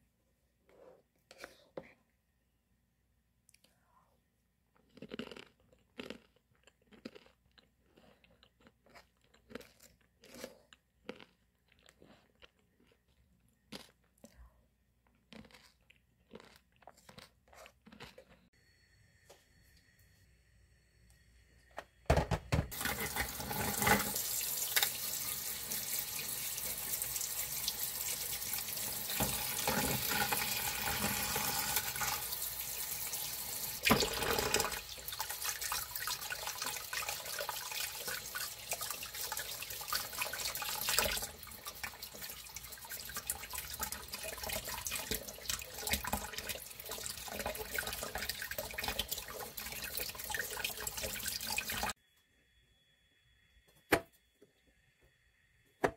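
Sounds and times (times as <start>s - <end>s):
tap water running into bowl: 22.1s - 51.9s.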